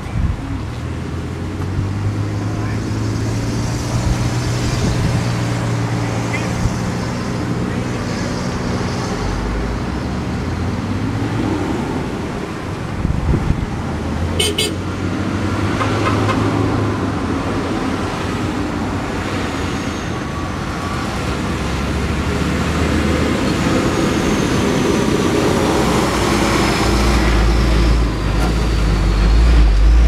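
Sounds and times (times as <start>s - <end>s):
traffic rumbling past: 0.0s - 30.0s
short high car horn toots: 14.4s - 14.8s.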